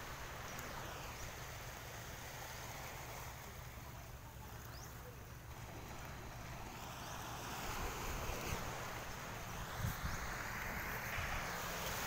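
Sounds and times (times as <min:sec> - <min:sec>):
wind hiss: 0:00.0 - 0:03.9, 0:04.6 - 0:12.0
gentle surf: 0:00.0 - 0:12.0
wind rumble on microphone: 0:04.7 - 0:12.0.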